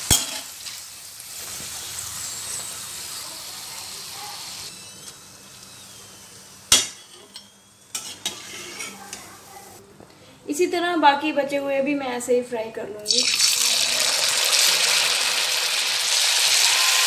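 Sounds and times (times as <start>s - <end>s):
hot oil sizzling in a wok: 0.0s - 6.8s, 13.1s - 17.0s.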